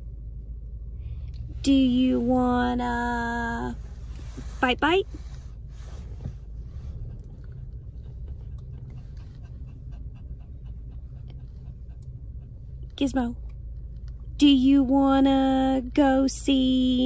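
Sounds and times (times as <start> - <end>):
car hum: 0.0 - 17.0
small dog panting: 6.6 - 13.0.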